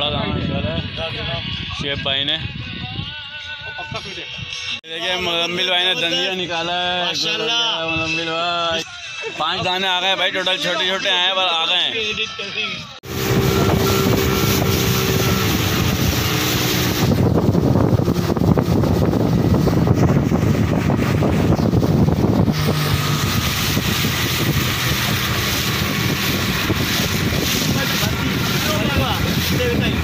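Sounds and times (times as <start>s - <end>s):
wind on microphone: 0.0s - 3.3s, 13.0s - 30.0s
outboard motor running: 13.0s - 30.0s.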